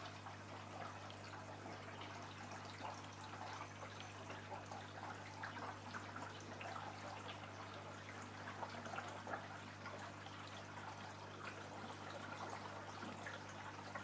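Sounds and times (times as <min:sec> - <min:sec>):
water trickling and dripping: 0:00.0 - 0:14.0.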